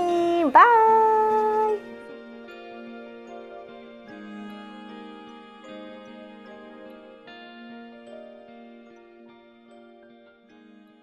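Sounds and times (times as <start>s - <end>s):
quiet music of held notes: 0.0s - 11.0s.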